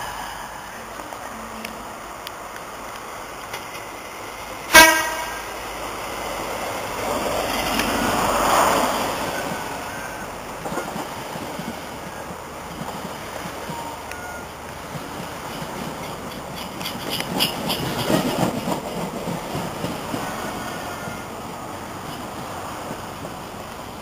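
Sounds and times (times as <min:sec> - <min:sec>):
diesel train passing: 0:00.0 - 0:24.0
train horn blast: 0:04.7 - 0:05.5.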